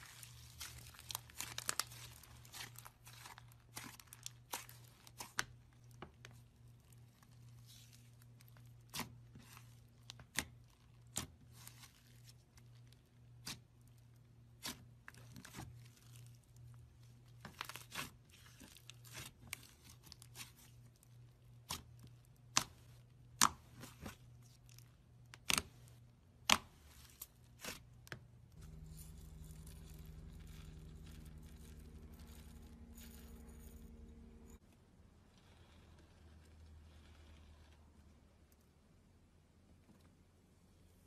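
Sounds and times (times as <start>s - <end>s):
steady low hum: 28.4s - 35.2s.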